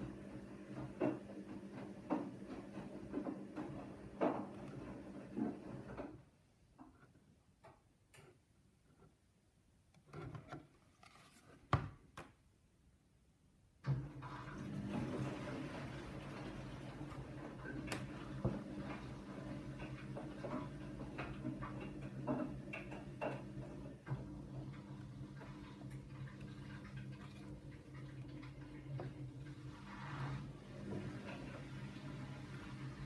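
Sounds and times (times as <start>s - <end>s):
painting board and tray handled: 10.0s - 12.4s.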